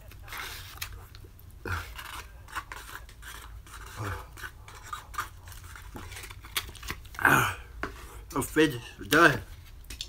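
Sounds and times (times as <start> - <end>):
fork scraping foam bowl: 0.2 - 0.9, 1.7 - 7.0.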